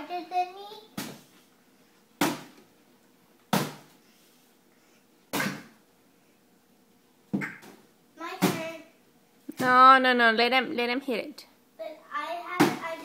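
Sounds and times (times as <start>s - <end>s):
bat striking pinata: 2.2s - 2.6s, 3.5s - 3.9s, 5.3s - 5.8s, 7.3s - 8.7s, 12.5s - 13.0s.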